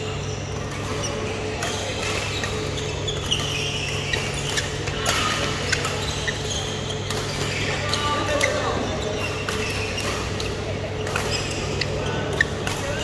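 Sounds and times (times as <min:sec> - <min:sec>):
shoe squeaks on court floor: 0:00.0 - 0:13.0
racket hitting shuttlecock: 0:08.2 - 0:13.0.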